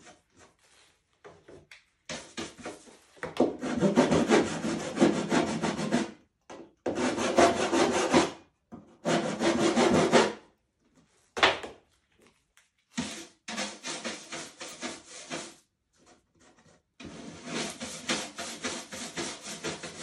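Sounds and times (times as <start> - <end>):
sandpaper rubbing on panel: 13.0 - 15.6, 17.0 - 20.0.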